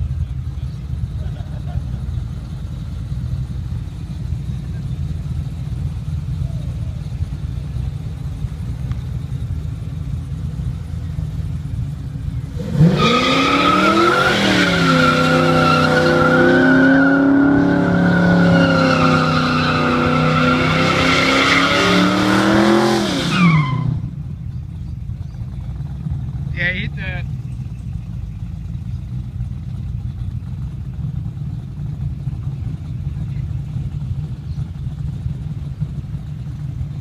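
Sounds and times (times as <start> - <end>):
car engine revving: 0.0 - 37.0.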